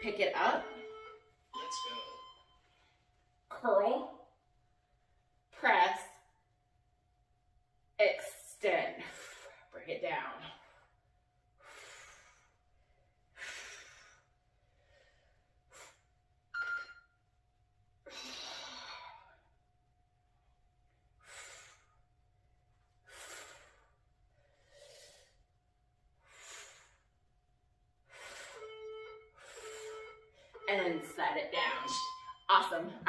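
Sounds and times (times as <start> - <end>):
woman breathing heavily: 9.0 - 9.8, 10.4 - 16.1, 18.0 - 19.6, 21.1 - 22.2, 23.0 - 25.5, 26.2 - 27.3, 28.0 - 30.7.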